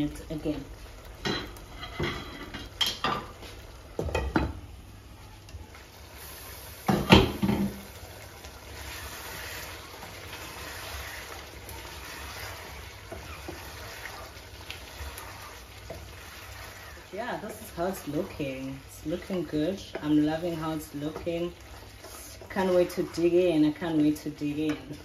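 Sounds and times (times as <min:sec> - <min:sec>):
stew simmering hiss: 0:00.0 - 0:25.0
wooden spoon stirring: 0:05.4 - 0:25.0.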